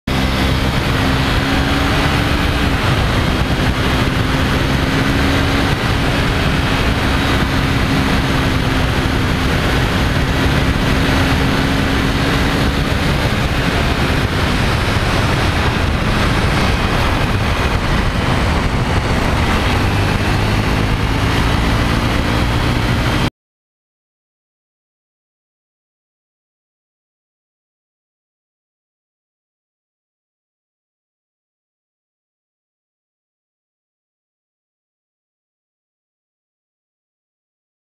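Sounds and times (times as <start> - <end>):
motorcycle engine running: 0.1 - 23.3
wind and road noise: 0.1 - 23.3.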